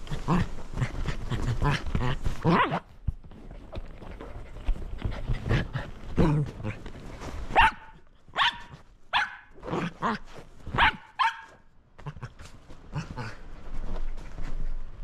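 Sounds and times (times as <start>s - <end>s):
dog barking sharply: 7.6s - 9.5s, 10.8s - 11.6s.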